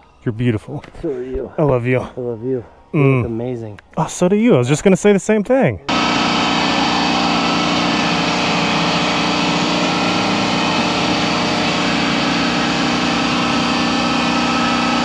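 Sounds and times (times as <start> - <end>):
motor droning: 5.9 - 15.0.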